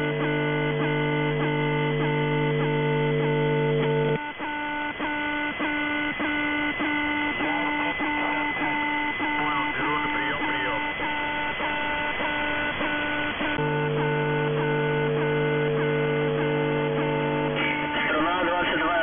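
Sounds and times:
buzzy multi-tone radio signal: 0.0s - 19.0s
faint distorted voice: 7.4s - 11.0s, 17.7s - 19.0s.

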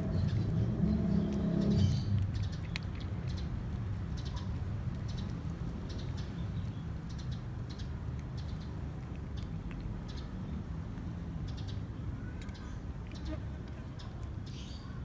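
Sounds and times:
low rumble: 0.0s - 2.4s
cat crunching dry kibble: 1.2s - 15.0s.

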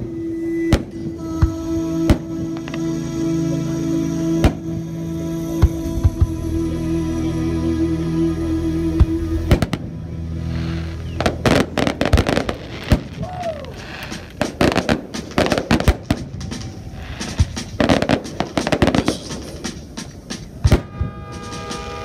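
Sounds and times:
fireworks bursting: 10.5s - 22.0s.

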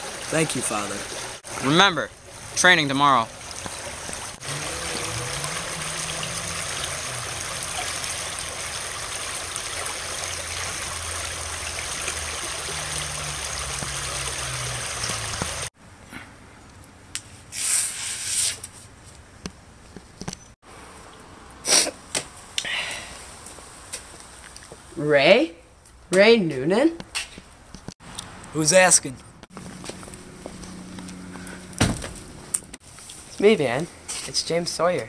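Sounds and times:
creek flowing: 0.0s - 15.7s.

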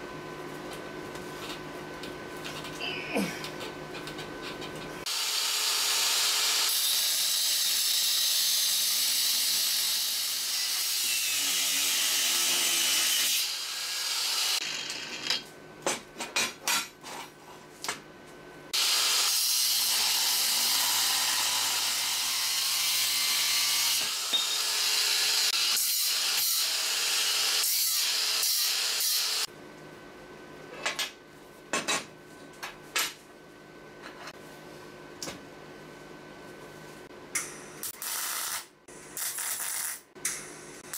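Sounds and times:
angle grinder cutting steel: 5.1s - 15.4s, 18.8s - 29.5s.

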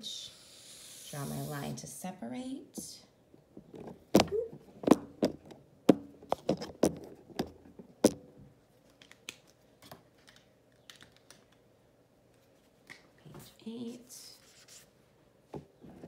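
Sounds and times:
handling knocks and clicks: 3.6s - 11.6s.

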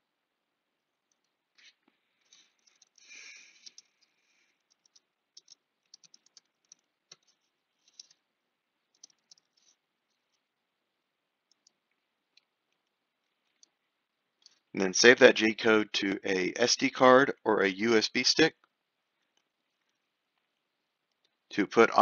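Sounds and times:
soft rustle: 1.3s - 10.7s, 11.5s - 14.7s
computer keyboard typing: 2.3s - 8.2s, 8.9s - 10.4s.

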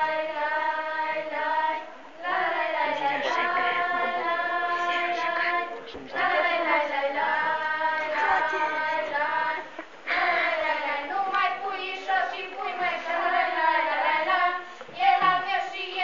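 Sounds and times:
girls singing without instruments: 0.0s - 16.0s.

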